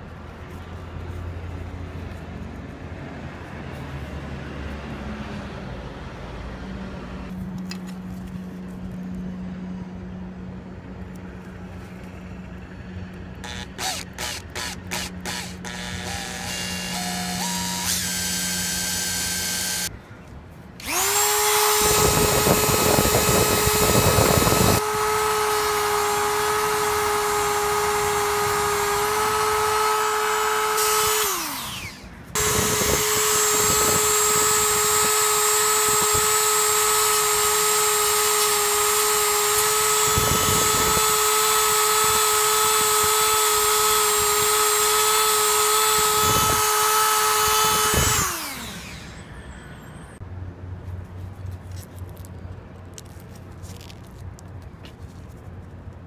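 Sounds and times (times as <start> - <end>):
power drill boring through plastic: 13.4 - 19.9, 20.8 - 49.3.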